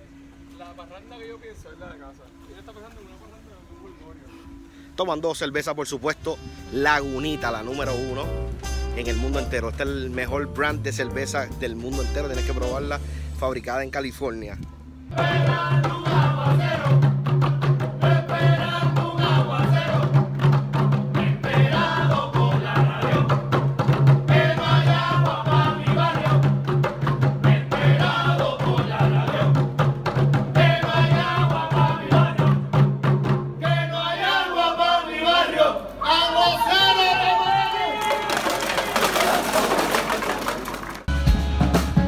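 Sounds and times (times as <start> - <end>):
voices chanting: 15.1 - 17.1, 18.0 - 20.2, 21.2 - 23.4, 24.3 - 26.5, 27.4 - 29.7, 30.6 - 32.7, 33.6 - 38.0.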